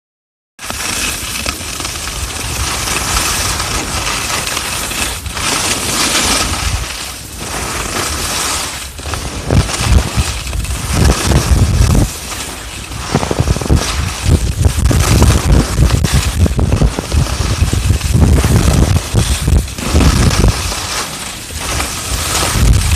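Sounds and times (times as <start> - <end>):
skis scraping over snow: 0.6 - 22.9
wind buffeting microphone: 9.0 - 21.0, 21.6 - 22.9.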